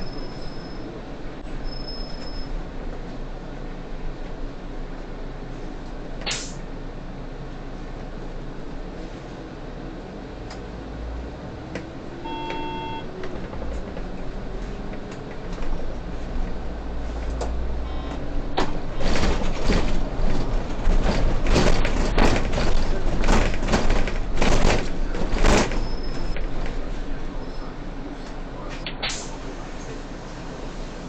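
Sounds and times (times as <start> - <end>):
bus engine rumble: 0.0 - 31.0
short beep: 12.2 - 13.1, 17.8 - 18.3.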